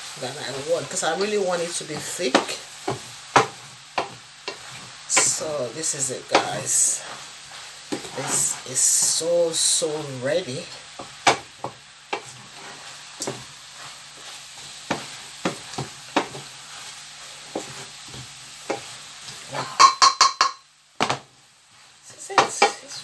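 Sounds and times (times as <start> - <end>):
food sizzling in a frying pan: 0.0 - 23.0
spatula knocking against pan: 2.3 - 4.6, 19.8 - 21.2.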